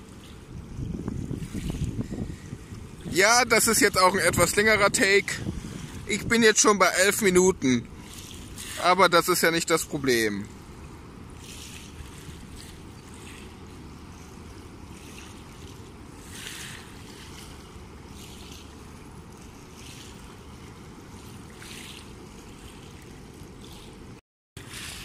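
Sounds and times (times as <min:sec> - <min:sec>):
waves lapping against gravel: 0:00.0 - 0:25.0.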